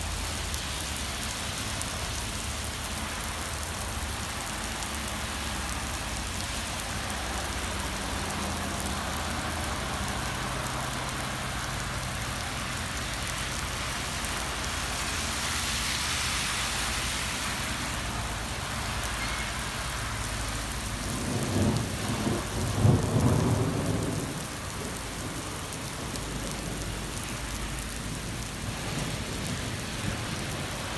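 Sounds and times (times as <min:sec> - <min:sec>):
heavy rain on road: 0:00.0 - 0:30.9
low rumble of thunder: 0:20.7 - 0:27.2.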